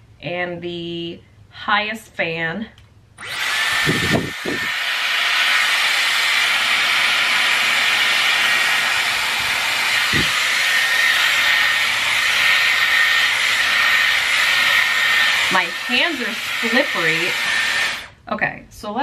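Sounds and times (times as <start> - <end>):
hair styler blowing air: 3.2 - 18.2.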